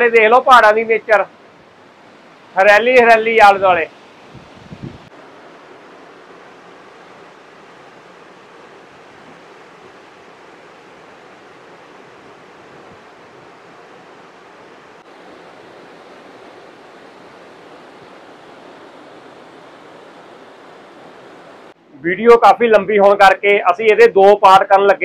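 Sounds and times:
waterfall rushing: 0.0s - 21.8s.

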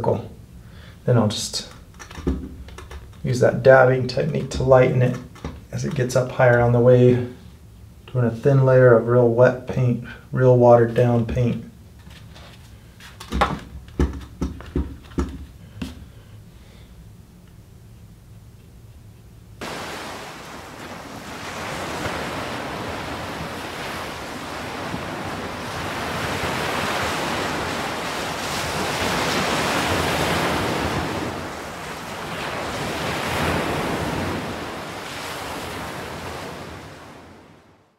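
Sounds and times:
ocean surf breaking on shore: 19.6s - 37.9s.

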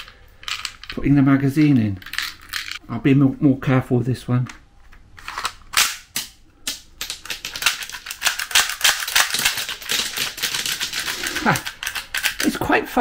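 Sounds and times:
plastic cartridges clattering on floor: 6.2s - 12.5s.

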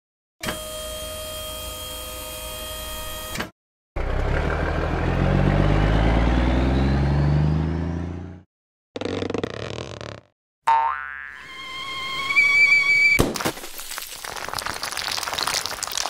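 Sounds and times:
hydraulic hum with held tones: 0.4s - 3.4s
truck engine accelerating: 4.0s - 8.5s.

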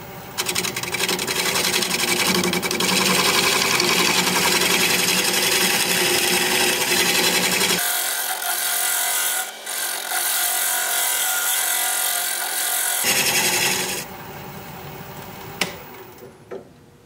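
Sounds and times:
tool scraping spinning wood: 0.4s - 7.9s, 9.2s - 14.1s
wood lathe running: 0.4s - 14.1s.

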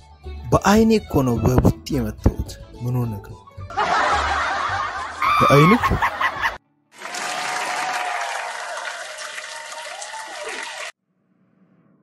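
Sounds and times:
audience applause: 7.0s - 11.0s.

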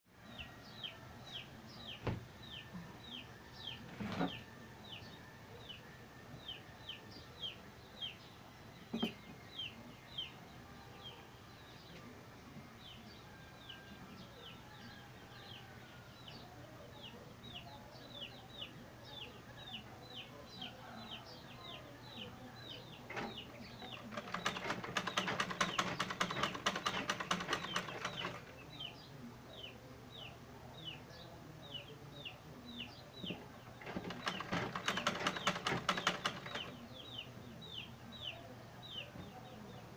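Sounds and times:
bird chirping: 12.7s - 39.9s
sewing machine clatter: 23.1s - 28.5s, 33.8s - 36.7s.

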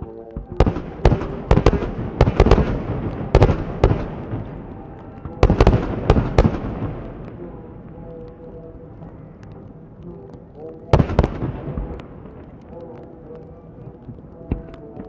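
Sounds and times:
low rumble: 0.4s - 14.7s
fireworks banging and crackling: 0.4s - 15.0s.

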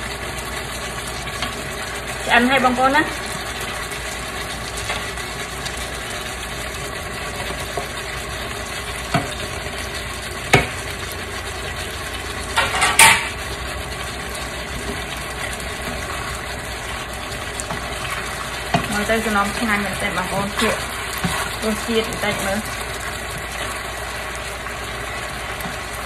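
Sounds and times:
pot simmering hiss: 0.0s - 26.0s
utensils knocking against pot: 12.5s - 13.4s
spoon stirring in pot: 14.4s - 26.0s.

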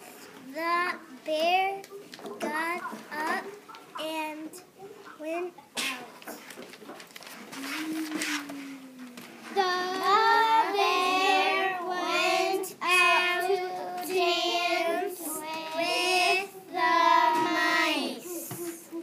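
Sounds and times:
girls singing in unison: 9.4s - 18.8s.

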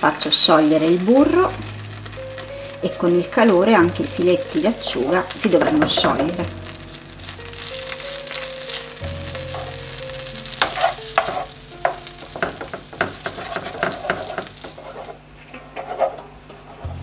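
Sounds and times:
butter sizzling in frying pan: 0.0s - 15.2s
wooden spoon scraping pan: 10.6s - 16.9s.

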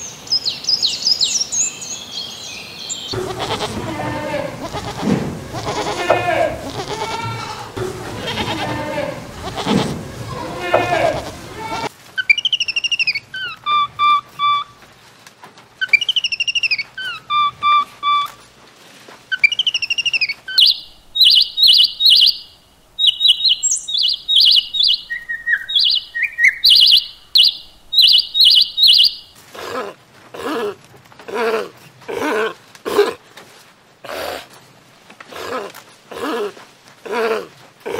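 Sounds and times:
high chattering calls: 2.9s - 14.7s, 19.3s - 29.4s
sea lion barking: 3.2s - 11.9s
whistled bird calls: 12.2s - 14.8s, 15.8s - 18.4s, 19.3s - 29.4s.

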